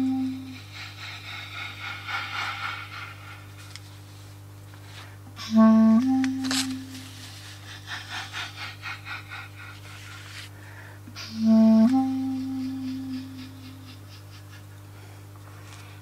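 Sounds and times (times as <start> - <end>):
wind instrument long low notes: 0.0 - 0.7, 5.4 - 7.2, 11.1 - 14.1
steady low hum: 0.0 - 16.0.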